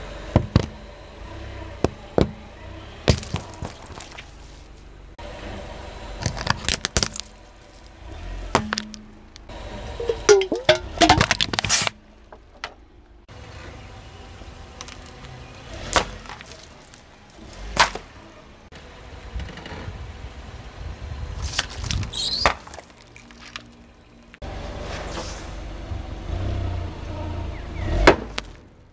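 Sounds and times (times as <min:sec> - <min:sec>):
plastic bottles cracking: 0:06.2 - 0:07.9, 0:10.1 - 0:11.9, 0:21.5 - 0:23.8.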